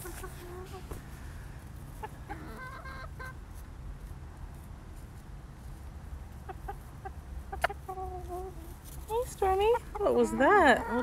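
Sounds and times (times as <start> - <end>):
chickens clucking softly: 0.0 - 1.0, 1.8 - 3.4, 6.3 - 8.8, 9.5 - 11.0
low steady rumble: 0.0 - 11.0.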